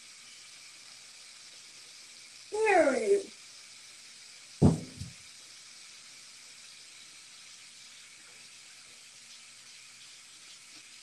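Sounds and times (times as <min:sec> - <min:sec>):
faint steady hiss: 0:00.0 - 0:11.0
small knock: 0:04.6 - 0:05.2.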